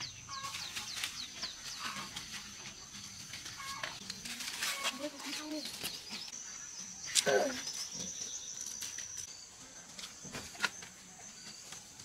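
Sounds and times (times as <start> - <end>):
leaves rustling: 0.2 - 6.4.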